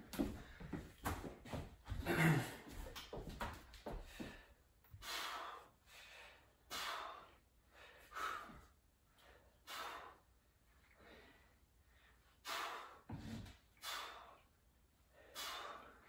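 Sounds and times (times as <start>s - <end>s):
person breathing hard: 3.8s - 16.0s.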